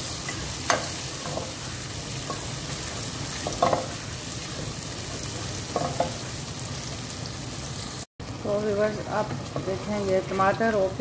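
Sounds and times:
vegetables sizzling in hot oil: 0.0 - 11.0.

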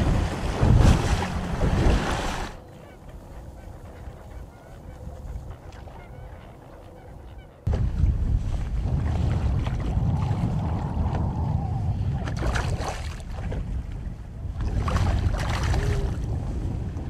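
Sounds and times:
boat running over choppy water: 0.0 - 17.0
wind buffeting microphone: 0.0 - 17.0.

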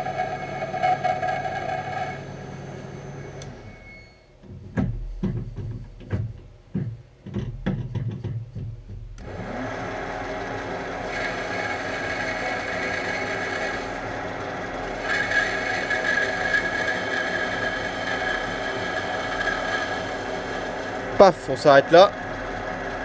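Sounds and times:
lathe motor whining: 0.0 - 3.9, 9.2 - 23.0.

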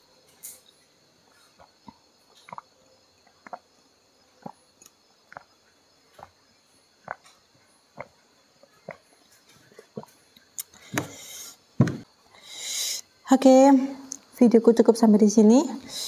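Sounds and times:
person gulping a drink: 1.6 - 3.6.

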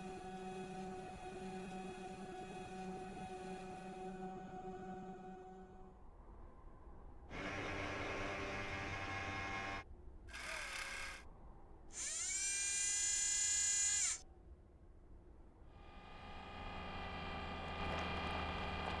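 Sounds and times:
small electric motor whirring: 7.3 - 11.2, 11.9 - 14.2.

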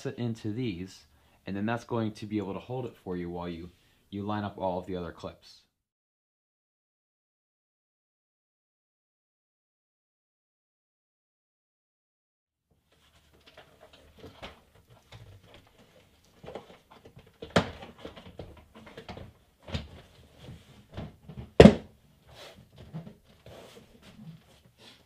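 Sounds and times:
rustling: 12.9 - 21.5, 22.2 - 25.0.

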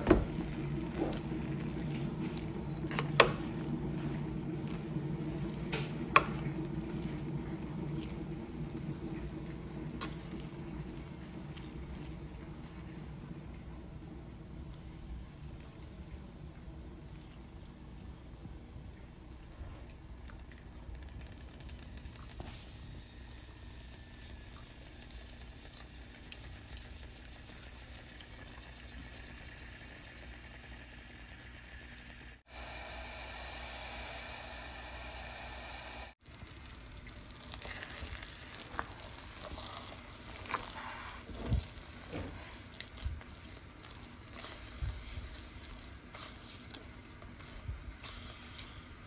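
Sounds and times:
wooden spoon stirring and scraping pot: 0.0 - 20.2, 36.8 - 49.0
thick mixture bubbling in pot: 0.0 - 32.8, 36.2 - 49.0.

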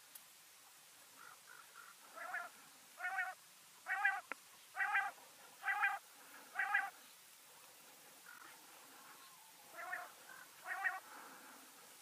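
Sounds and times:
quail calls: 1.2 - 6.9, 9.2 - 11.1.

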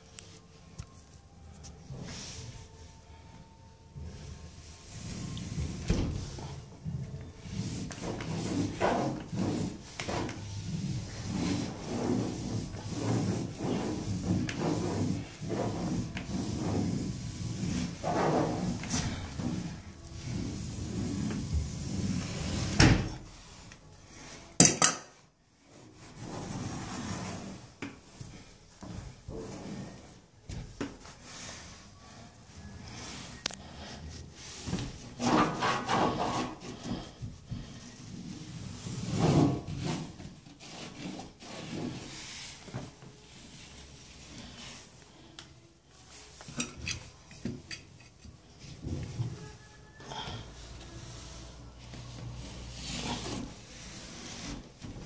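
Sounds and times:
cloth scrubbing a panel: 7.4 - 22.8, 34.4 - 45.0.

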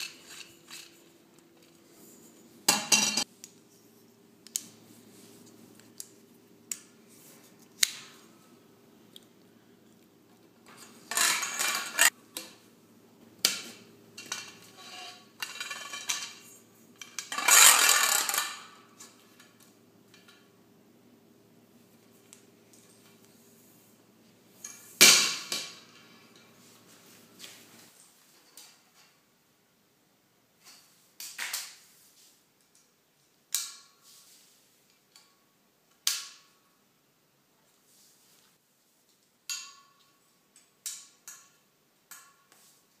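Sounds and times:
metal shelf parts clinking: 0.0 - 1.1, 2.7 - 3.3, 10.7 - 12.2, 14.2 - 19.2
metal scraping rattle: 10.8 - 12.1, 17.2 - 18.7.

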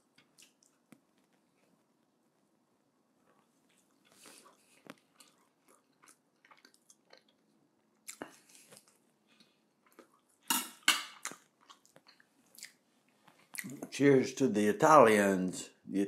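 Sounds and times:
man chewing food: 0.0 - 1.9, 3.2 - 13.9.

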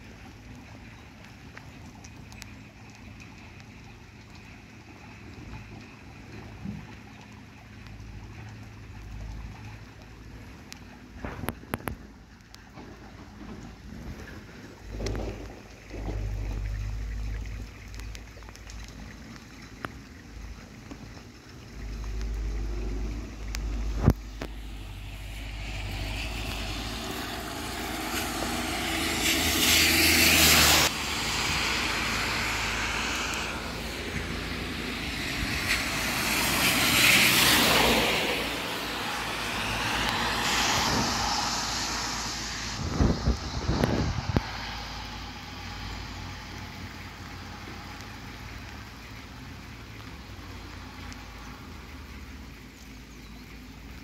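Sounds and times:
tyres hissing through water: 13.8 - 52.5
rain hissing: 14.3 - 19.7, 20.4 - 52.5.

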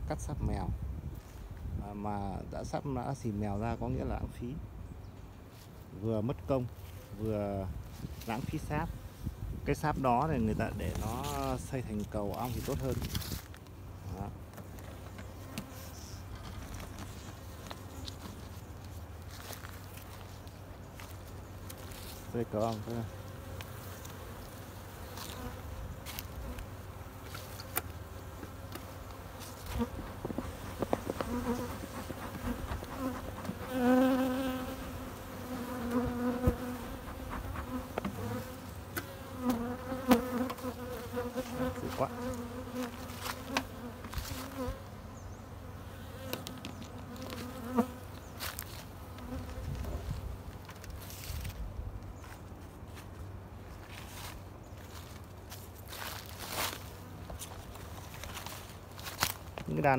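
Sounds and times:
bees buzzing: 20.7 - 50.6
hive parts clicking and rustling: 28.6 - 34.6.

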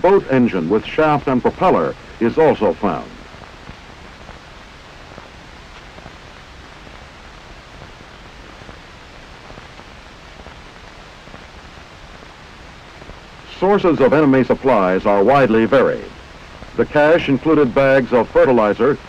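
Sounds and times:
film soundtrack hiss: 0.0 - 19.0.

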